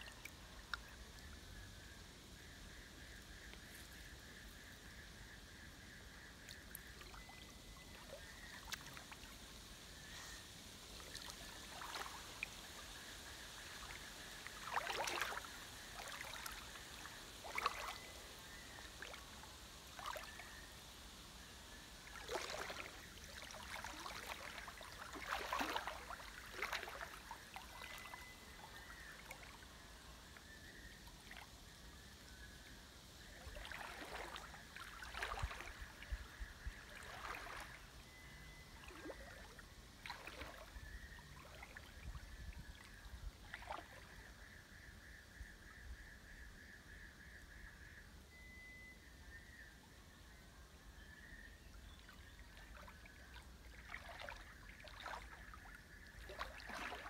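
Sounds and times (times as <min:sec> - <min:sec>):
water splashing from wading: 0:06.4 - 0:20.6, 0:22.0 - 0:29.6, 0:33.2 - 0:44.2, 0:52.0 - 0:57.0.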